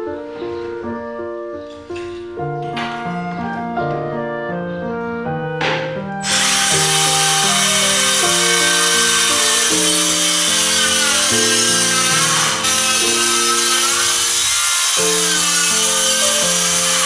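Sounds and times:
piano background music: 0:00.0 - 0:17.0
circular saw cutting plywood: 0:06.2 - 0:17.0.

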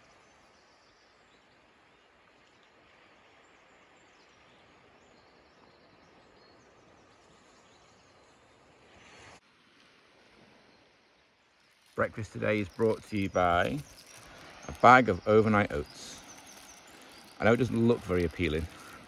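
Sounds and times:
faint outdoor hiss: 0:00.0 - 0:19.0
faint high bird chirps: 0:12.2 - 0:19.0.

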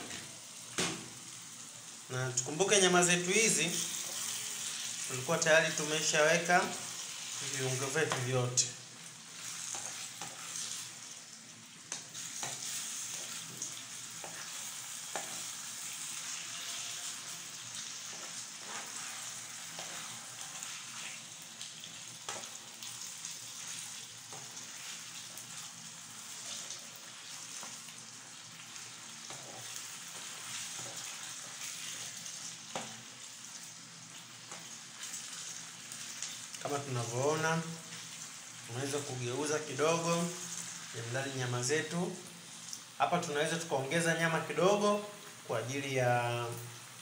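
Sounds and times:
meat sizzling in a frying pan: 0:00.0 - 0:47.0
wooden spoon scraping a pan: 0:09.4 - 0:11.0, 0:11.9 - 0:21.3, 0:29.2 - 0:33.0.

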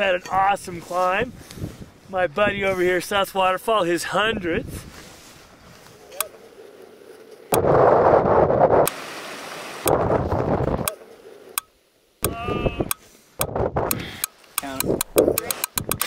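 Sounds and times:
wind buffeting microphone: 0:00.0 - 0:03.2, 0:07.5 - 0:09.0, 0:09.8 - 0:10.9, 0:12.2 - 0:16.0.

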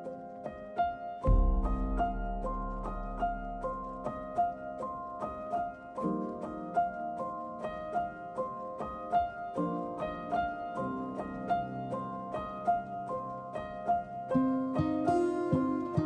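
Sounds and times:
deeper notes: 0:01.3 - 0:04.3.

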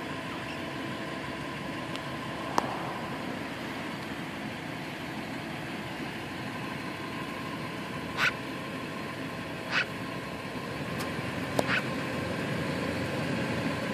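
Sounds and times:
background rumble: 0:01.2 - 0:06.7
magpie harsh calls: 0:08.1 - 0:08.4, 0:09.7 - 0:09.9, 0:11.6 - 0:11.9.

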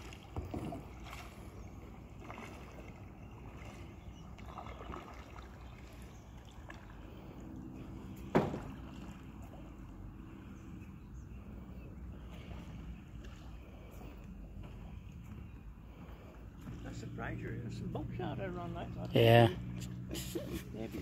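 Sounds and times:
kayak paddle splashing in water: 0:00.0 - 0:10.3.

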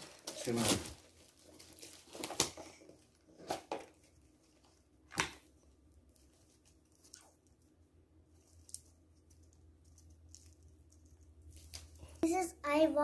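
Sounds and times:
paper wrapping rustling: 0:00.0 - 0:04.8, 0:08.3 - 0:12.2.

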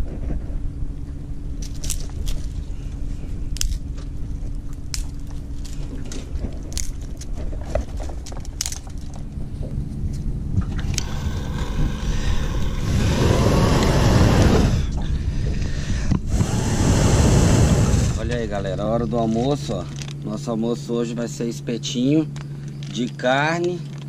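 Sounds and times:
low steady rumble: 0:00.0 - 0:24.0
twigs snapping and cracking: 0:01.6 - 0:02.7, 0:03.5 - 0:09.4, 0:18.2 - 0:20.4
loud rushing noise: 0:11.0 - 0:14.9, 0:16.3 - 0:18.3.

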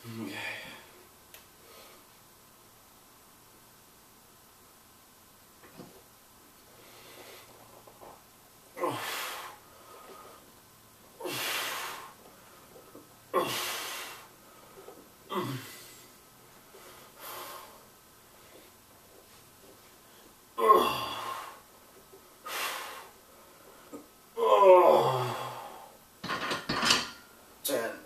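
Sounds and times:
man grunting: 0:00.0 - 0:00.8, 0:08.8 - 0:09.4, 0:15.3 - 0:15.9, 0:20.6 - 0:21.5, 0:24.4 - 0:25.8
man breathing heavily: 0:08.8 - 0:10.5, 0:11.2 - 0:18.8, 0:20.0 - 0:21.7, 0:22.4 - 0:24.0.

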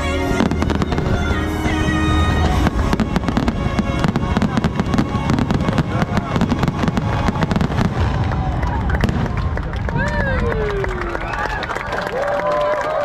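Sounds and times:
music soundtrack: 0:00.0 - 0:09.9
fireworks bursting and crackling: 0:00.0 - 0:11.6.

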